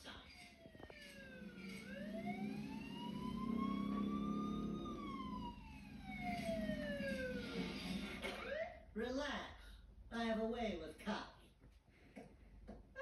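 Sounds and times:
cartoon police siren wailing: 0:00.4 - 0:08.9.

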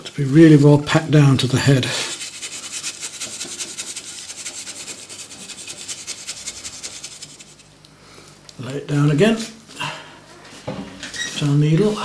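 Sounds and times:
dry scratchy rustling strokes: 0:01.4 - 0:07.8.

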